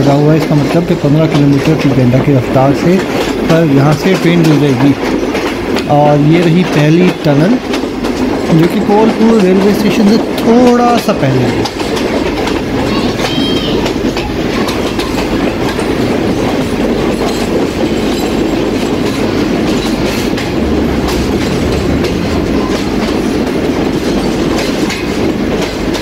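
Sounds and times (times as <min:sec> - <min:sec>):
train wheels rumbling on rails: 0:00.0 - 0:26.0
wheels clicking over track: 0:00.0 - 0:26.0.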